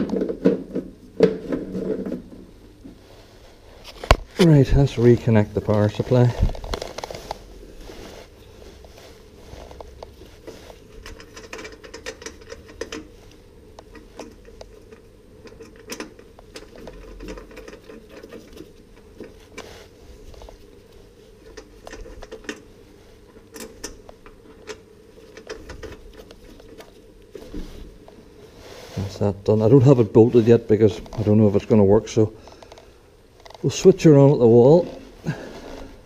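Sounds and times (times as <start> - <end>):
faint hum: 0.0 - 36.0
hands handling wiring clicks: 10.9 - 13.1, 13.8 - 19.7.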